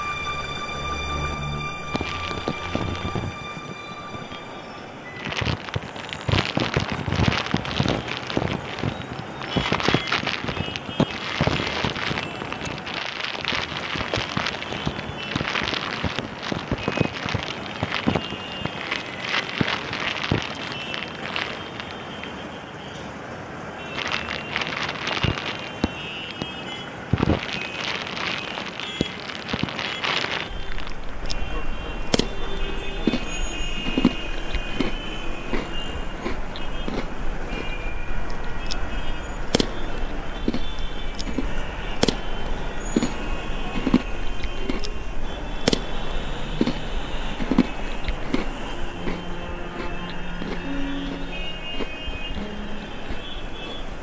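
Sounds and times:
street traffic noise: 0.0 - 54.0
plastic wrapper crinkling: 5.2 - 22.0, 23.8 - 26.5, 27.2 - 31.5.

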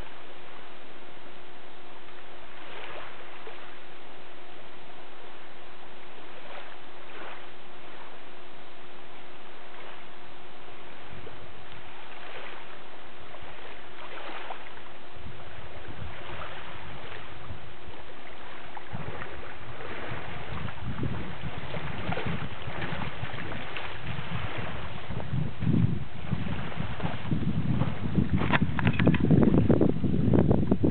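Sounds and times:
small waves lapping: 0.0 - 30.1
water sloshing around wading legs: 2.1 - 4.4, 5.2 - 29.6
wind buffeting microphone: 9.2 - 30.9.

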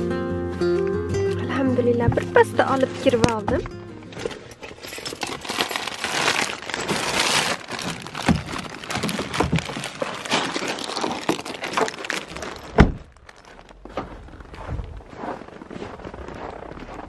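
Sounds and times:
bag rustling and crinkling: 4.0 - 17.0
car door shutting: 12.7 - 13.1.

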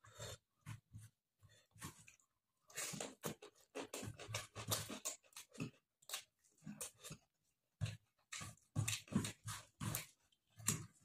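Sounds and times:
mouth chewing: 1.8 - 7.3.

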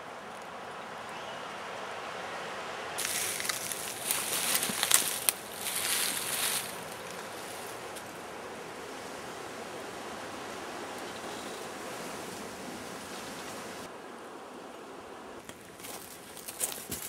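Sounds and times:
steady background hiss: 0.0 - 17.0
twigs cracking: 3.0 - 8.1
leaves and twigs crunching: 3.0 - 8.2, 15.4 - 17.0.

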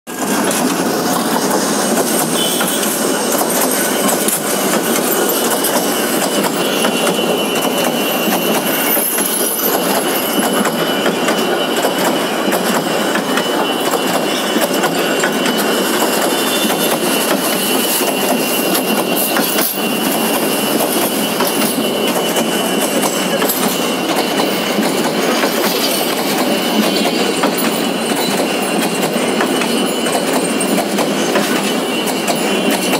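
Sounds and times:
train passing on rails: 0.1 - 32.9.

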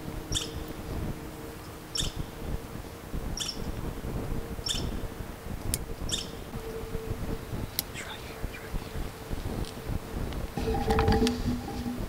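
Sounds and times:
small animal chirping: 0.3 - 0.6, 3.4 - 3.7, 6.1 - 6.4
low rumble: 10.5 - 12.0.

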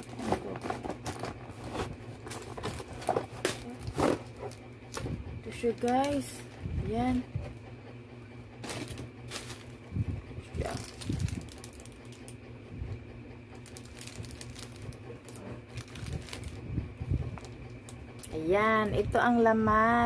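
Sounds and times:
steady low hum: 0.0 - 20.0
bubble wrap crinkling: 8.6 - 9.9, 10.6 - 12.3, 13.6 - 16.7.

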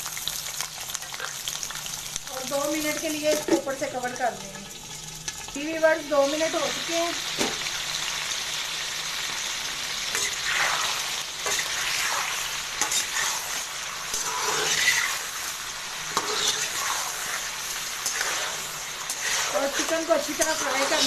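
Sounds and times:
chicken sizzling in hot fat: 0.0 - 21.0
metal spatula scraping pan: 10.1 - 21.0.

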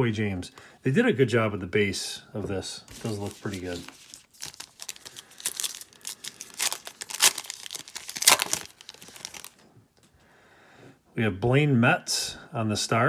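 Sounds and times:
foil wrapper tearing and crinkling: 3.0 - 9.6.

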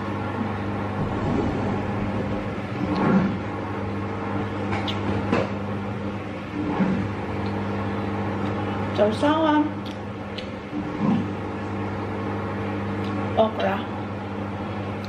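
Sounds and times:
electrical hum: 0.0 - 15.0
chewing smacks and clicks: 9.8 - 10.5.

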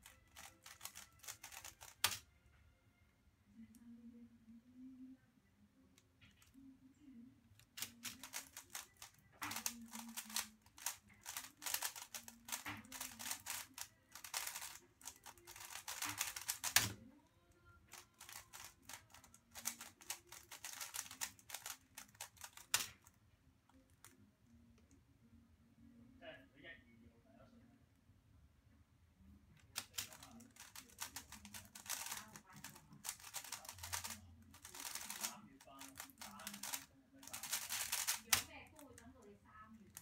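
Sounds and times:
puzzle cube plastic clicking: 0.0 - 2.3, 7.6 - 17.0, 17.9 - 23.2, 29.6 - 39.2.

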